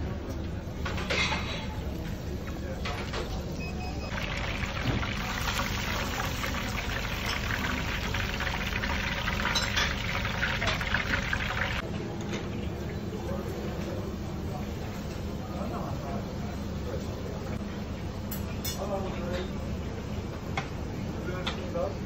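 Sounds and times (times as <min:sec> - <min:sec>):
seafood deep-frying in oil: 0:01.7 - 0:13.2.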